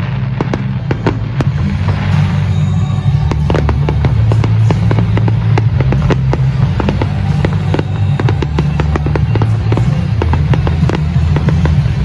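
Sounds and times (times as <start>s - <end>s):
fireworks bursting and crackling: 0.0s - 12.0s
music with deep bass: 0.0s - 12.0s.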